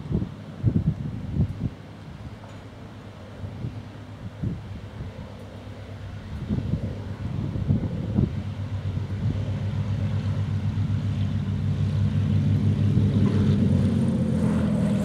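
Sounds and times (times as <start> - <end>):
propeller plane engines droning: 0.0 - 15.0.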